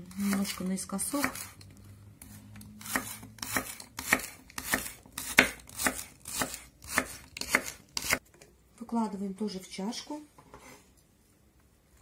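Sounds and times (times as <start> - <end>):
knife chopping on wooden board: 0.2 - 1.6, 2.8 - 8.2.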